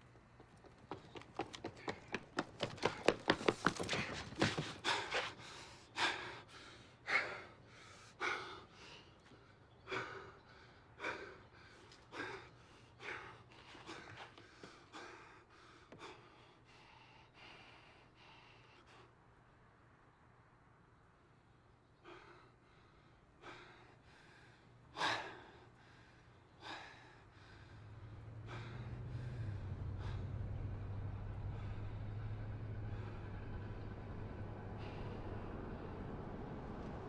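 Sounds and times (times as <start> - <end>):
man gasping breaths: 3.8 - 19.2, 22.0 - 30.7.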